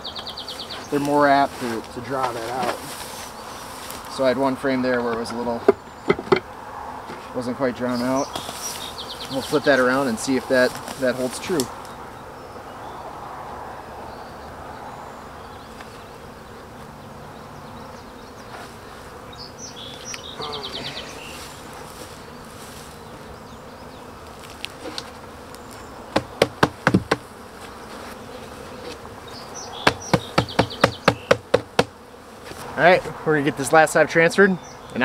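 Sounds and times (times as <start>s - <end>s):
bees buzzing: 0.0s - 35.0s
wooden box knocking: 5.7s - 6.5s, 26.2s - 27.2s, 29.8s - 31.9s.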